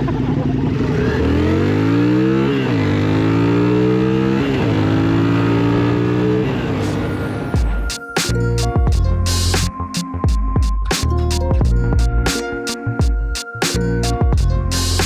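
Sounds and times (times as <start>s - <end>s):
motorcycle engine accelerating: 0.0s - 7.8s.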